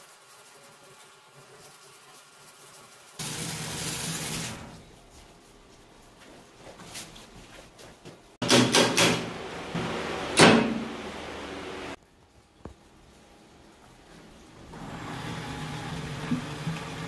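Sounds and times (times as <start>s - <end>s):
wood spinning on lathe hiss: 3.1s - 4.7s, 14.8s - 17.0s.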